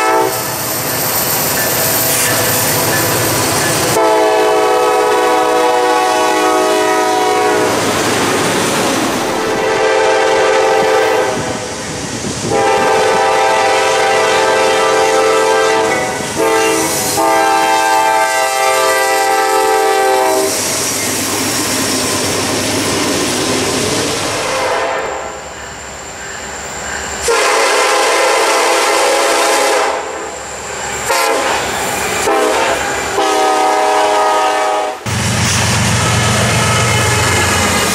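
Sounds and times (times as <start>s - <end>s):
locomotive air horn blasts: 0.0s - 0.4s, 3.9s - 7.8s, 9.3s - 11.6s, 12.5s - 20.6s, 24.4s - 25.4s, 27.2s - 30.2s, 31.0s - 35.1s, 36.0s - 37.9s
passing train rumble and clatter: 0.0s - 37.9s.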